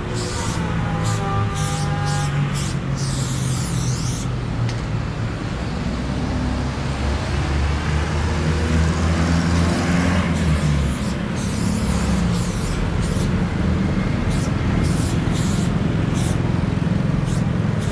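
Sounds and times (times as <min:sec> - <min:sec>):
spray paint can hissing: 0:00.0 - 0:04.4, 0:09.6 - 0:13.4, 0:14.2 - 0:16.6, 0:17.2 - 0:17.9
vehicle engine humming: 0:00.0 - 0:17.9.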